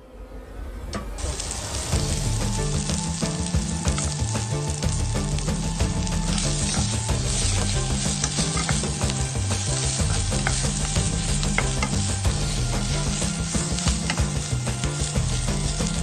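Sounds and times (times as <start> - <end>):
food sizzling in hot oil: 1.2 - 16.0
wooden spatula stirring in wok: 1.4 - 16.0.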